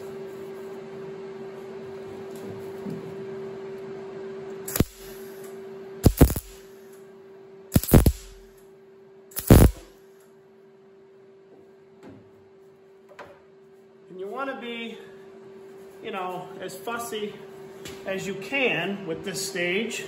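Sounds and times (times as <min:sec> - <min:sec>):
welding arc crackle: 0:04.7 - 0:05.4, 0:06.0 - 0:06.8, 0:07.7 - 0:08.6, 0:09.3 - 0:09.9.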